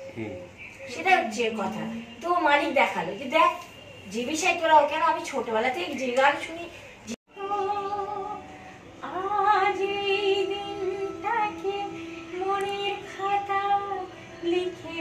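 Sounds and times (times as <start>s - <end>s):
woman singing unaccompanied: 4.2s - 15.0s.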